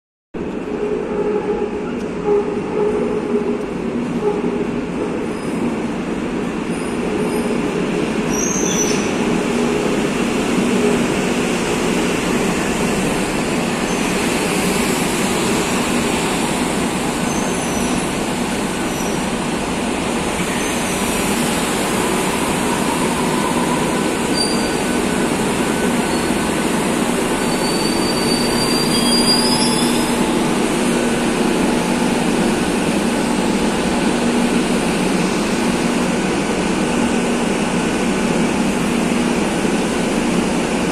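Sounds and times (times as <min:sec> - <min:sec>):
train wheels rumbling on rails: 0:00.4 - 0:40.9
high-pitched wheel and brake squeals: 0:08.3 - 0:09.1, 0:17.2 - 0:18.0, 0:22.3 - 0:25.2, 0:27.4 - 0:30.3.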